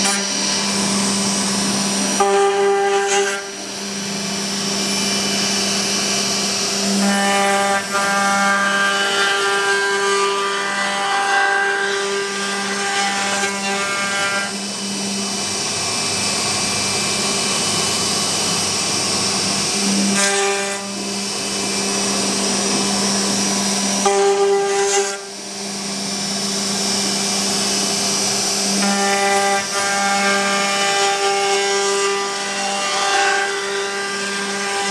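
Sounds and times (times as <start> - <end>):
router spindle whining: 0.0 - 34.9.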